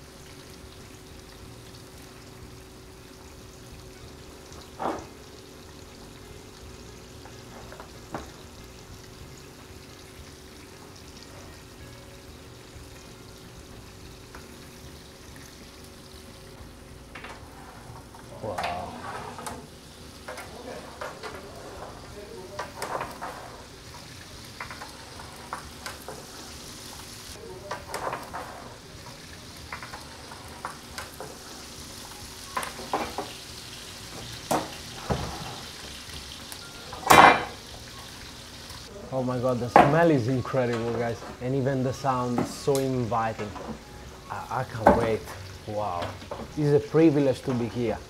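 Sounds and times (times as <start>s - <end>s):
meat sizzling in a hot pan: 0.0s - 16.8s, 19.6s - 48.0s
metallic clatters and scrapes: 17.3s - 19.7s.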